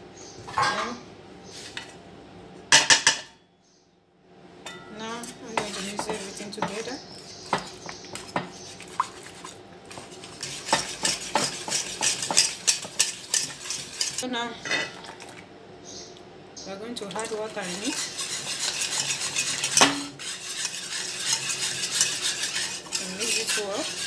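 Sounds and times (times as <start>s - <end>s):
whisk scraping metal bowl: 5.1s - 14.2s, 17.0s - 24.0s.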